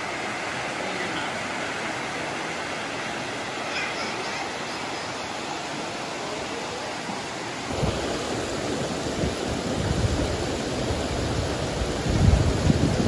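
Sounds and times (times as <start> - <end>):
low rumbling of rapids: 0.0 - 13.0
stream water rushing: 0.0 - 13.0.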